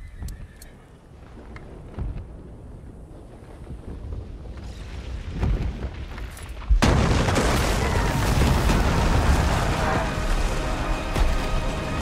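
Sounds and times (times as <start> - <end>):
rumble of fire and debris: 1.0 - 12.0
huge explosion blast: 6.8 - 12.0.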